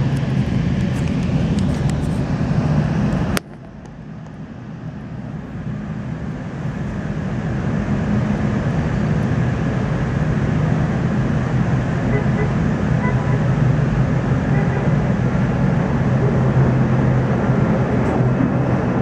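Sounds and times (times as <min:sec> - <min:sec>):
jet engine low rumble: 0:00.0 - 0:19.0.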